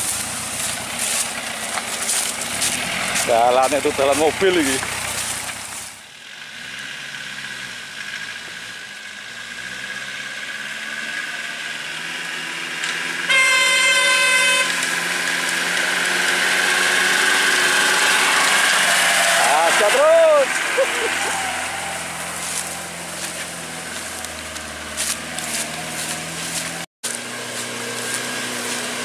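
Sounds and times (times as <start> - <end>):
truck engine running: 0.0 - 29.0
horn blast: 13.2 - 15.1.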